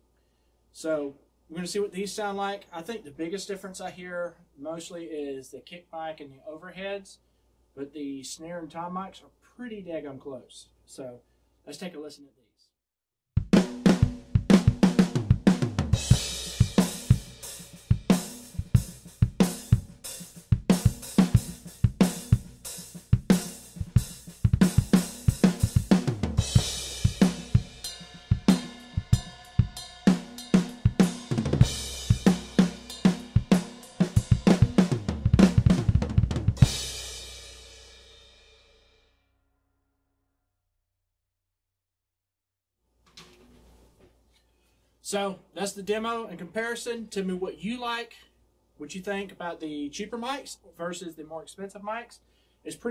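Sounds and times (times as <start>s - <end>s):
drum kit playing steady beat: 13.4s - 38.5s.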